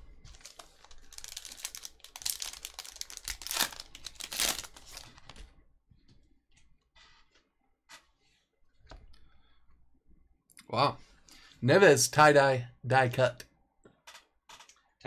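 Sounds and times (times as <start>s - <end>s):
cards rustling being shuffled: 0.3s - 5.5s
foil wrapper tearing and crinkling: 0.4s - 5.2s.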